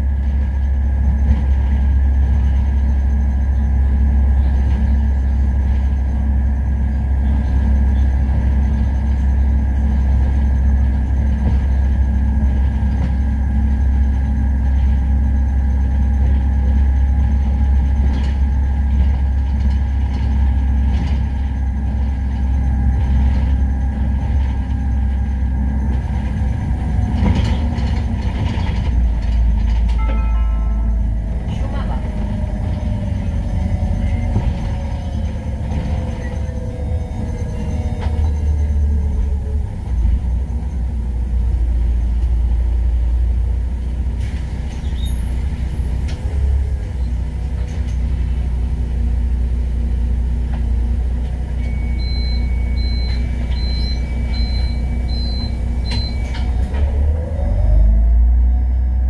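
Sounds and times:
bus engine drone: 0:00.0 - 0:59.0
road noise: 0:00.0 - 0:59.0
thin whine: 0:13.0 - 0:42.4.

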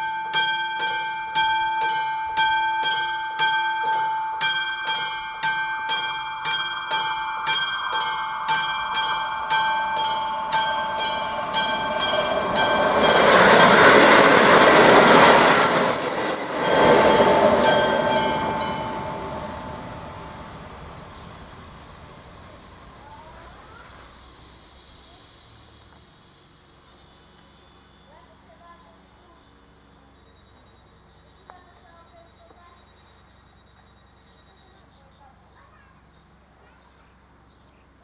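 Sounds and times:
level crossing warning bell: 0:00.0 - 0:14.3, 0:15.5 - 0:20.8
train rolling over crossing: 0:00.0 - 0:35.0
high wheel squeal: 0:06.0 - 0:20.8.

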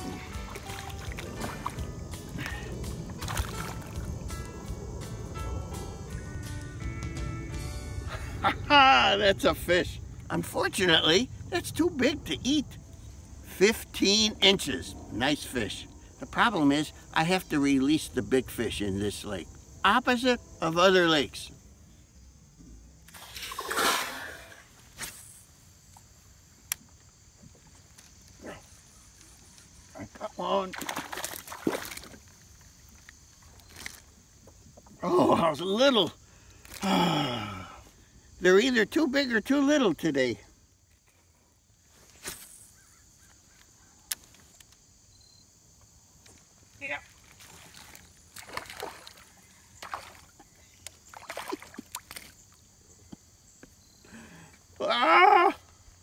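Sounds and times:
fish splashing into lake: 0:00.0 - 0:01.9, 0:03.1 - 0:04.1, 0:23.1 - 0:24.7, 0:30.6 - 0:32.4, 0:47.4 - 0:50.4, 0:51.0 - 0:52.4
smaller splash: 0:00.0 - 0:01.9, 0:03.1 - 0:04.1, 0:23.1 - 0:25.3, 0:30.6 - 0:32.4, 0:47.3 - 0:50.3, 0:51.0 - 0:52.4.

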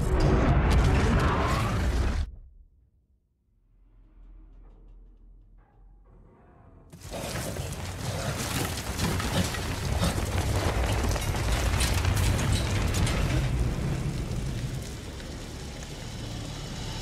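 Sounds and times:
deep rumble: 0:07.7 - 0:17.0.

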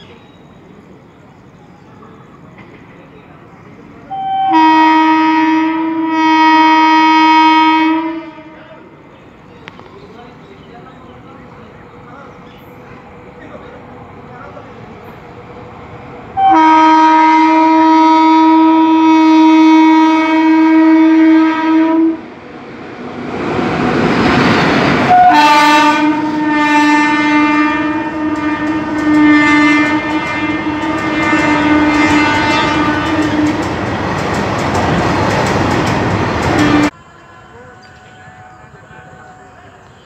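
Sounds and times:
train horn blasts: 0:04.1 - 0:08.8, 0:16.4 - 0:22.3, 0:25.0 - 0:33.8
locomotive rushing past: 0:07.0 - 0:36.9.

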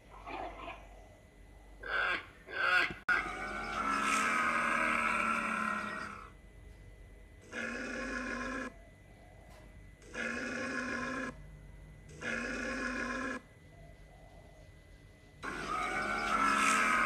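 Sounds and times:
camel calling: 0:01.8 - 0:06.3, 0:07.5 - 0:08.7, 0:10.0 - 0:11.4, 0:12.1 - 0:13.4, 0:15.4 - 0:17.0.

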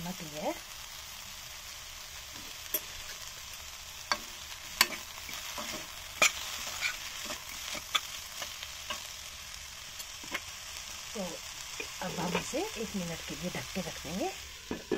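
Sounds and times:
vegetables sizzling in a pan: 0:00.0 - 0:14.9
spatula scraping pan: 0:04.0 - 0:09.1.

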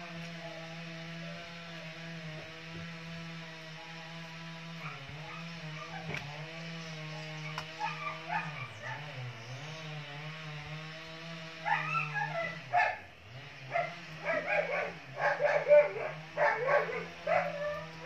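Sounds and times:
dog barking and yipping: 0:04.7 - 0:06.3, 0:07.4 - 0:09.2, 0:11.6 - 0:13.1, 0:13.7 - 0:18.0.

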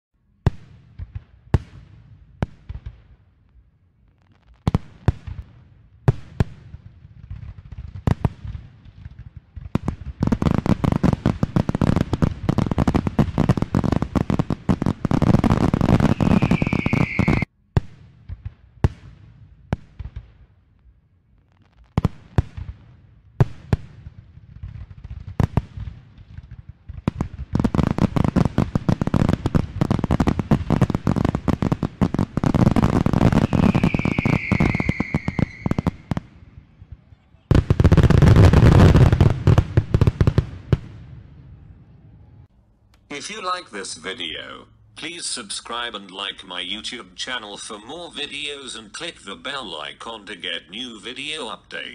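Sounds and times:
dense firework crackling: 0:00.5 - 0:42.5
falling firework whistle: 0:15.9 - 0:17.5, 0:33.2 - 0:36.2.

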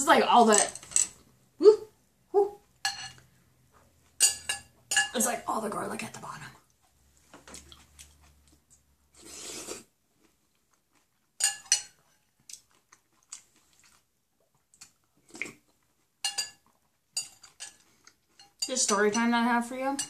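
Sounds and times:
fork clinking glass bowl: 0:02.8 - 0:03.2, 0:04.2 - 0:05.2, 0:11.4 - 0:12.0, 0:16.2 - 0:17.8
slurping noodles: 0:09.2 - 0:09.9.

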